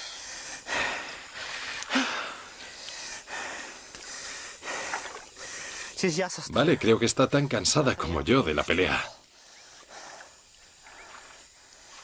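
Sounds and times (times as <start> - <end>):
heavy hissing breaths: 0.0 - 6.0, 8.9 - 12.0.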